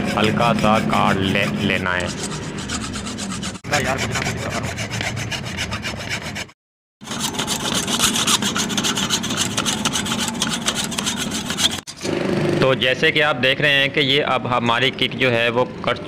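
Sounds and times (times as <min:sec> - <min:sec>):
hacksaw cutting through steel: 0:00.6 - 0:12.1.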